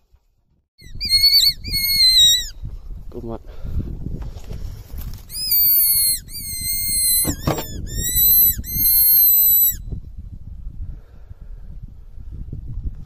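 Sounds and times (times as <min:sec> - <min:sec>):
hand whistle blasts: 0:00.8 - 0:02.5, 0:05.3 - 0:09.8.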